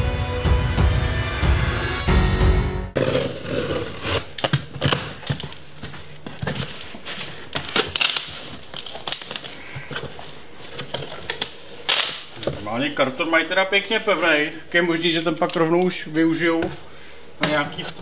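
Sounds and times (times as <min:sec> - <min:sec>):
intro music: 0:00.0 - 0:03.3.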